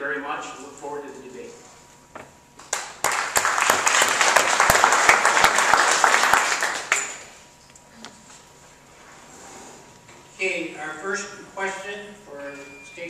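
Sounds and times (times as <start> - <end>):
audience applauding: 2.7 - 7.4.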